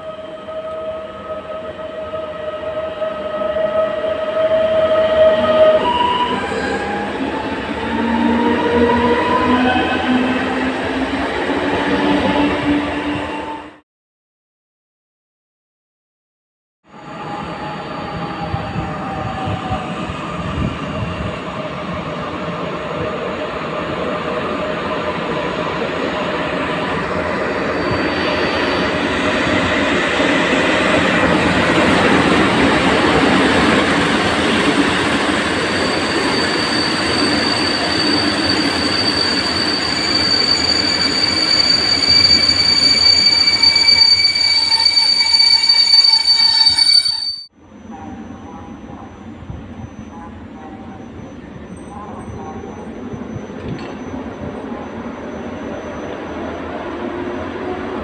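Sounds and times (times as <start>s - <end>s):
train coaches rumbling on rails: 0.0s - 13.7s, 17.2s - 58.0s
high steady squeal: 26.9s - 29.7s, 30.9s - 47.5s.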